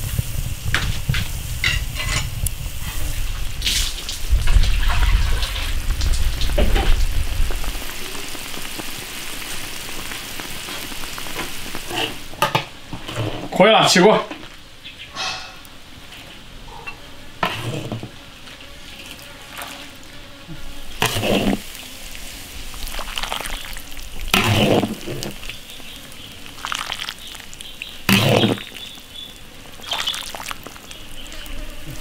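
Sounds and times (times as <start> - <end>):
metal ladle scraping wok: 15.1 - 15.7, 16.9 - 18.0, 21.0 - 21.6
liquid splashing: 19.0 - 20.1, 20.8 - 31.2.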